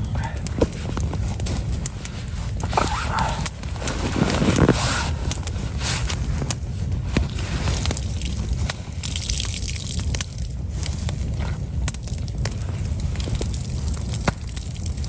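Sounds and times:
campfire crackling: 0.0 - 15.0
sharp pops of fire: 0.0 - 15.0.

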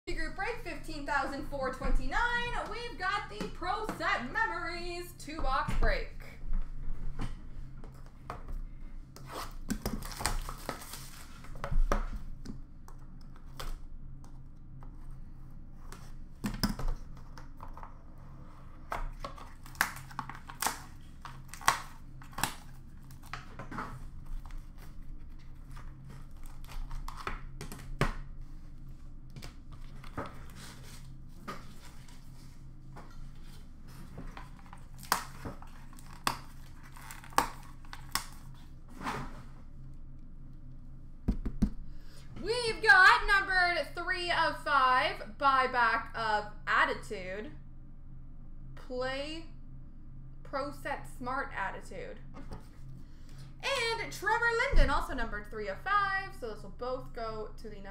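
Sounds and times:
faint steady hum: 0.1 - 57.9
plastic wrap tearing and crinkling: 9.2 - 11.6, 19.2 - 28.0, 34.3 - 38.7.

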